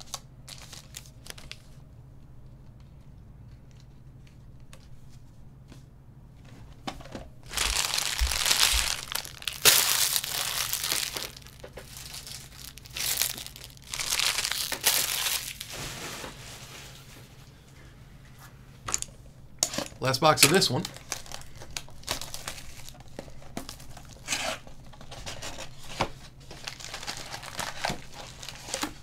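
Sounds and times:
plastic wrapping crinkling: 0.0s - 1.8s, 7.4s - 17.3s, 20.5s - 29.0s.

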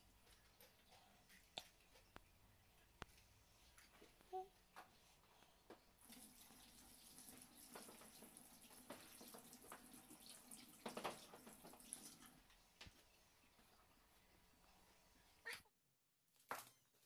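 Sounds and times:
tap water running into sink: 6.0s - 13.0s.

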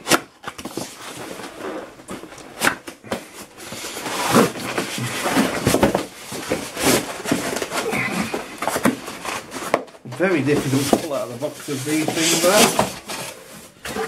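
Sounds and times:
cardboard rubbing and scraping: 3.2s - 14.0s.

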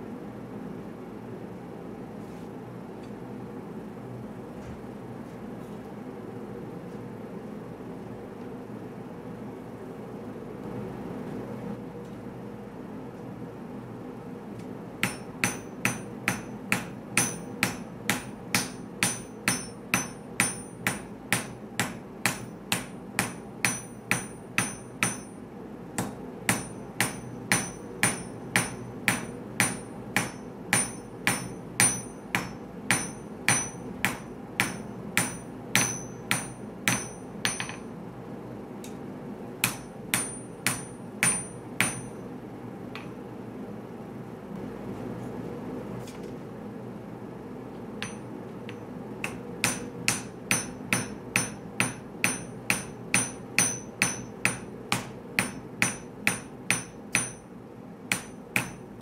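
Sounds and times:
hammer striking metal on anvil: 15.0s - 25.4s, 26.0s - 37.9s, 39.6s - 42.2s, 48.0s - 57.5s, 58.1s - 58.9s.

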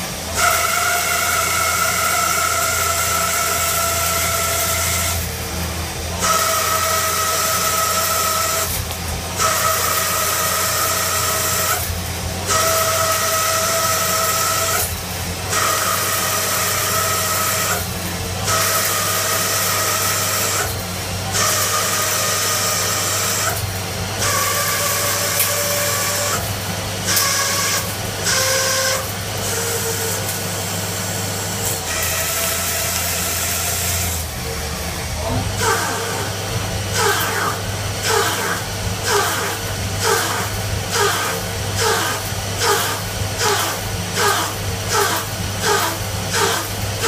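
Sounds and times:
lathe cutting whine: 0.0s - 47.0s
low machine hum: 20.3s - 47.0s.

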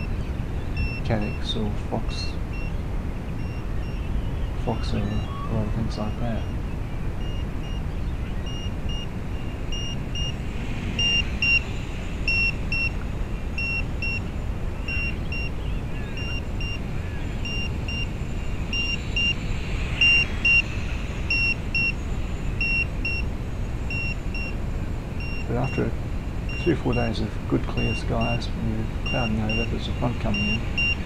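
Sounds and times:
transmitter double beeping: 0.0s - 0.2s, 0.8s - 1.5s, 8.5s - 9.1s, 11.0s - 11.6s, 26.5s - 28.4s, 29.1s - 31.0s
low wind rumble on microphone: 0.0s - 31.0s.

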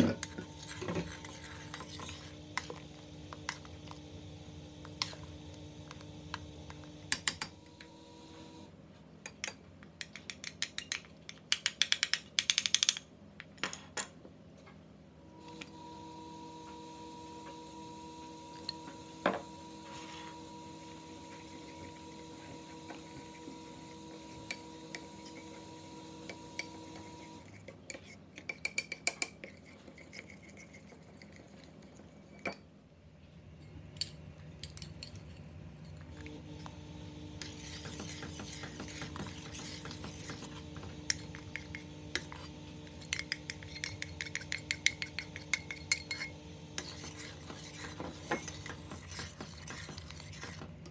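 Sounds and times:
metal spoon clinking against bowl: 43.0s - 46.9s.

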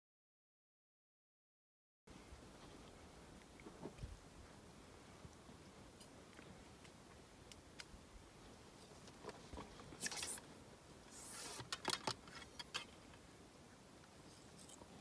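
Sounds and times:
scraping rustle: 11.1s - 12.9s
small clicks of handling: 11.4s - 13.2s.

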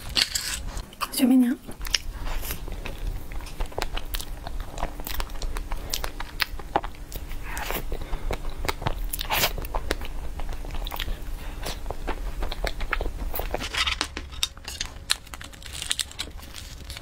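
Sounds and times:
close mouth chewing sounds: 1.8s - 13.6s.

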